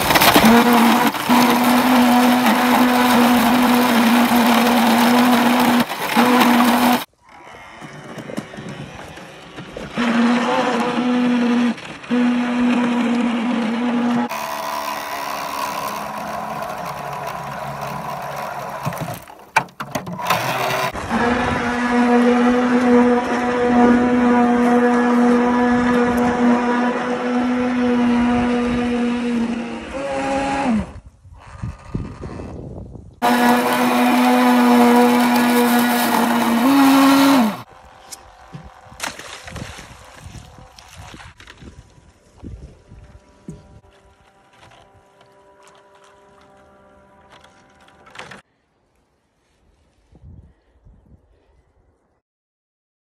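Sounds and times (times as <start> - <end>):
motor humming: 0.0 - 32.6, 33.2 - 39.1
hull scraping through ice: 0.0 - 37.7.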